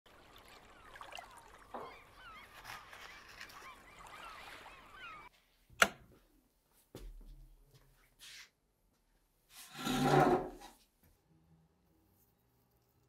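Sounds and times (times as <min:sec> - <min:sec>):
birds chirping: 0:00.1 - 0:05.3
soft crunches or rustles: 0:02.2 - 0:04.7.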